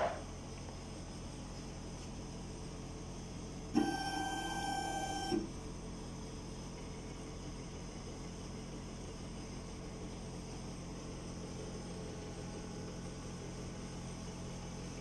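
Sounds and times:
constant low hum: 0.0 - 15.0
stepper motor whine: 3.7 - 5.6.

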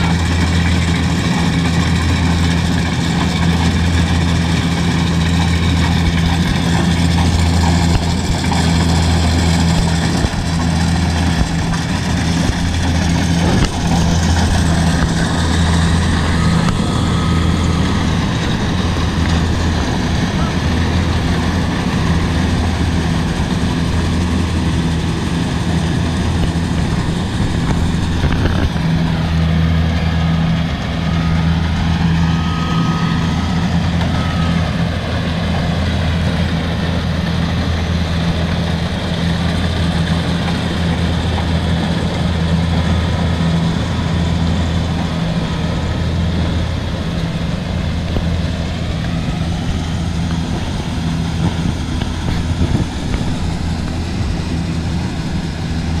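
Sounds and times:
diesel engine droning: 0.0 - 56.0
machinery rattling: 0.0 - 56.0.

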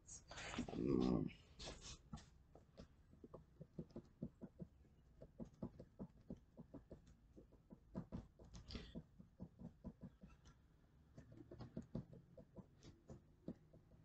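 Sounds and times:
pencil strokes on paper: 1.5 - 10.6.

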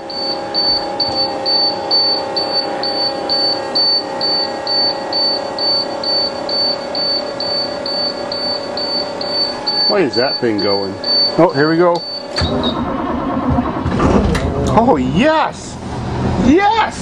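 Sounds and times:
steady droning tone: 0.0 - 16.5
rapid short high beeps: 0.1 - 12.8.

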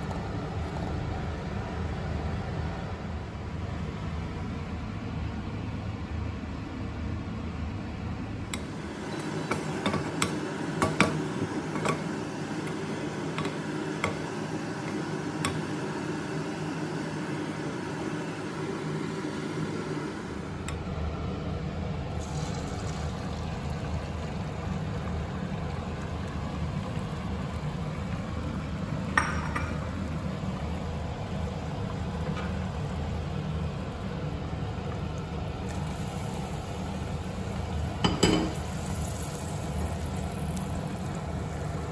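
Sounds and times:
click: 8.5 - 8.7.

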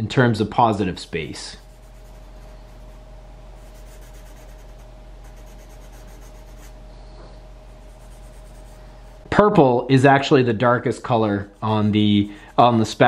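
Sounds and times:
faint electrical hum: 0.0 - 13.0
pencil scratching on paper: 1.4 - 3.0, 3.6 - 6.8, 7.8 - 8.8, 11.3 - 13.0.

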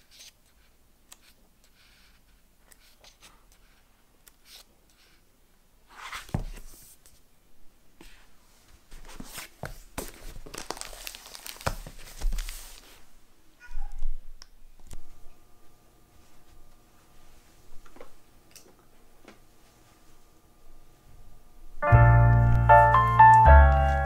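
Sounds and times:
book pages turning and rustling: 5.9 - 7.2, 8.0 - 13.1.

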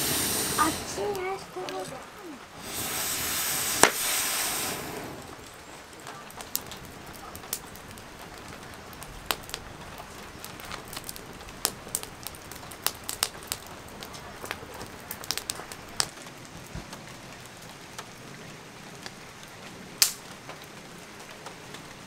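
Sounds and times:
steam hissing: 0.0 - 5.9
rain hiss: 0.0 - 22.0
wood fire crackling: 0.0 - 22.0.

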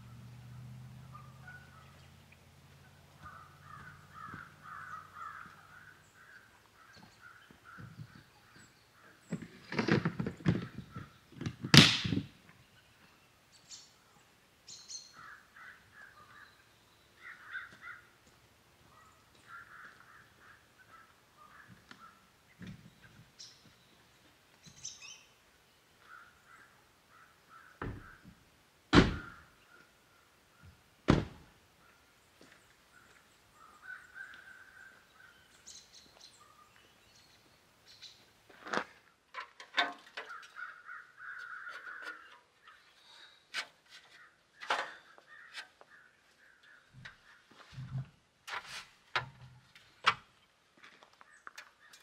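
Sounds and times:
crows cawing: 3.2 - 9.2, 15.2 - 16.6, 17.2 - 18.2, 19.0 - 22.2, 26.0 - 28.3, 29.2 - 30.2, 33.0 - 35.4, 40.1 - 43.2, 44.1 - 47.6
truck doors shutting: 31.1 - 31.4.

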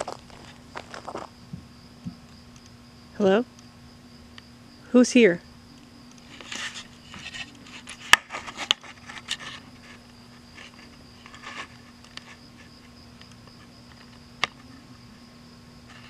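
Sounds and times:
rustling: 0.0 - 1.3, 6.2 - 12.7
low steady hum: 0.0 - 16.0
night insects trilling: 0.0 - 16.0.

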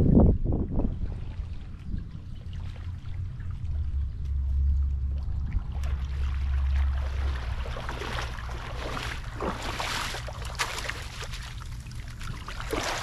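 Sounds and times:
wind rumble on microphone: 0.0 - 13.0
water splashing from wading: 0.6 - 13.0
net swishing through water: 1.0 - 13.0.

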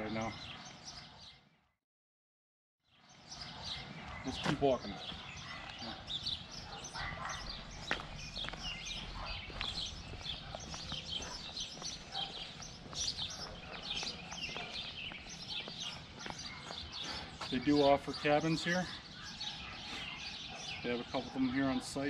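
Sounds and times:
small birds chirping: 0.0 - 1.7, 2.9 - 22.0
footsteps on asphalt: 3.3 - 20.2.

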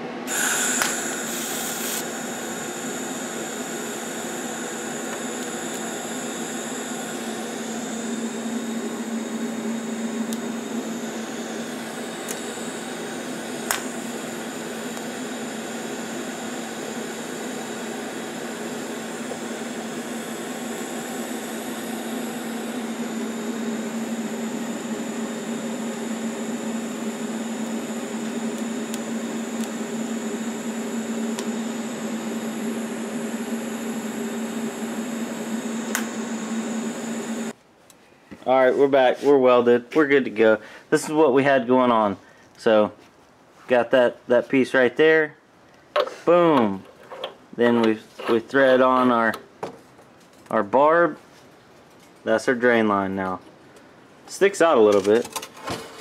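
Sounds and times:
steady hum: 0.0 - 37.6
welding arc hissing: 0.3 - 37.5.

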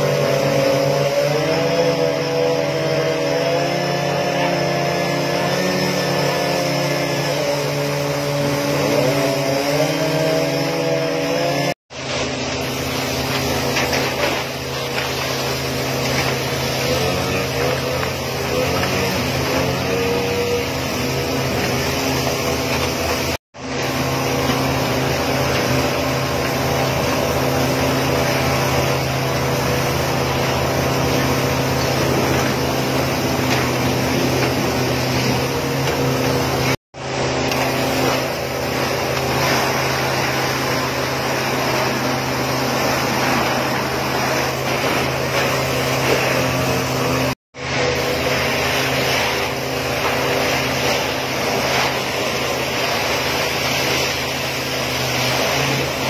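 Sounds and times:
pump engine humming: 0.0 - 56.0
water spraying from hoses: 0.0 - 56.0.

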